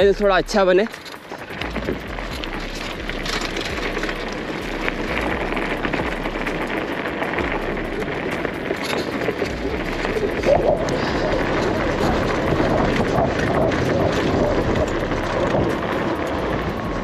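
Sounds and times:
bicycle rattling: 0:00.0 - 0:17.0
bicycle tyres crunching on gravel: 0:00.0 - 0:17.0
wind rumbling on microphone: 0:00.0 - 0:17.0.

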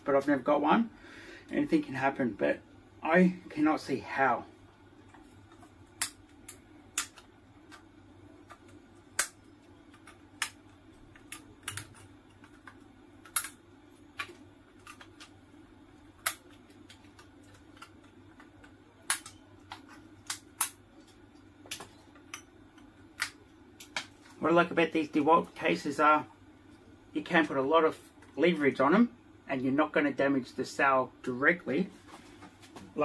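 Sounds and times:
faint steady hum: 0:00.0 - 0:33.0
sharp metallic clicks and snaps: 0:16.2 - 0:20.8.

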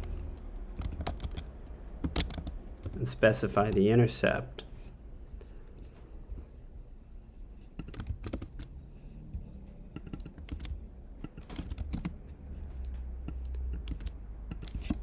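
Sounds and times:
typing on keyboard: 0:00.0 - 0:03.1, 0:07.8 - 0:08.7, 0:10.0 - 0:12.2, 0:13.3 - 0:15.0.

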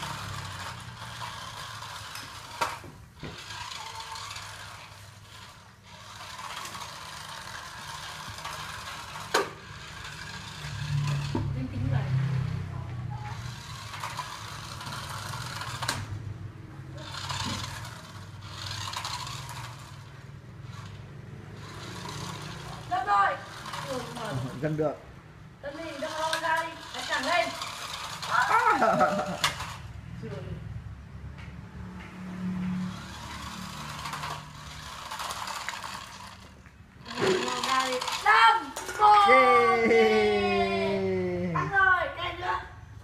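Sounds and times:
toy car motor whirring: 0:00.0 - 0:25.0, 0:25.6 - 0:30.0, 0:32.7 - 0:42.6
wheels scraping on concrete: 0:00.0 - 0:30.5, 0:31.5 - 0:43.0.

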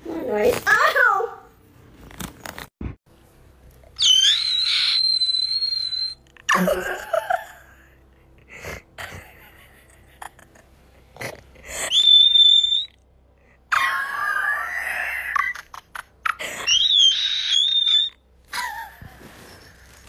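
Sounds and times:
high steady whistle: 0:04.0 - 0:06.2, 0:11.9 - 0:13.0.

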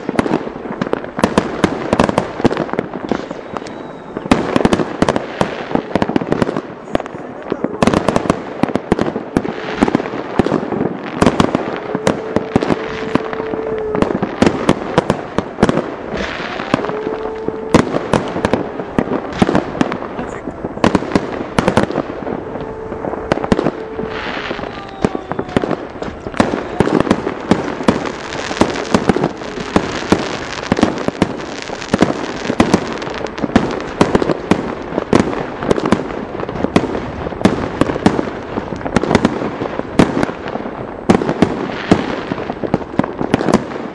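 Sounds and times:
fireworks bangs and crackling: 0:00.0 - 0:43.9
steady held tone: 0:09.2 - 0:34.8.

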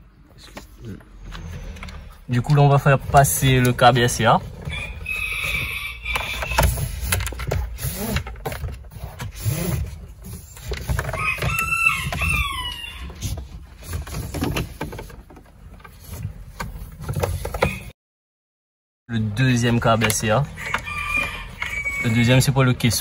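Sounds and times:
cable rubbing against car trim: 0:00.6 - 0:17.9.

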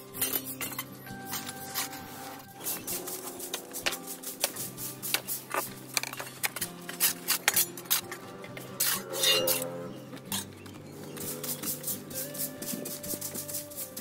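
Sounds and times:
background music: 0:00.0 - 0:14.0
metal shovel scraping on brick: 0:00.0 - 0:14.0
broom sweeping: 0:01.2 - 0:06.5, 0:11.2 - 0:14.0.

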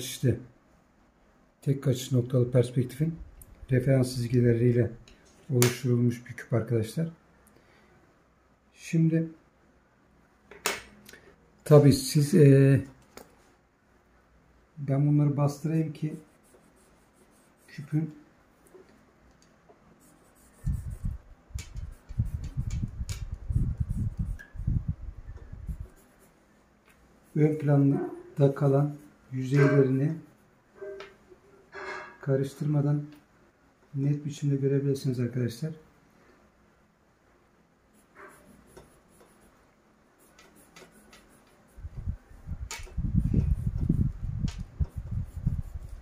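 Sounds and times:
pencil scratching on paper: 0:16.0 - 0:18.1, 0:20.0 - 0:24.7, 0:25.4 - 0:26.4, 0:27.2 - 0:31.0, 0:37.9 - 0:42.0, 0:42.8 - 0:46.0.

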